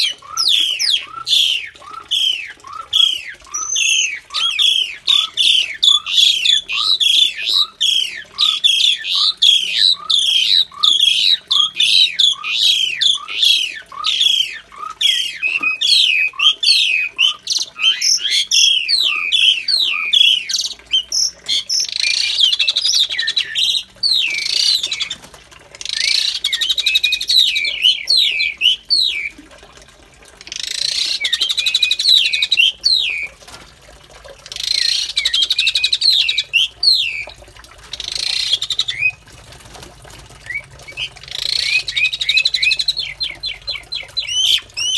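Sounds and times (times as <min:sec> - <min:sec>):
starling chirping and chattering: 0:40.5 - 0:44.9.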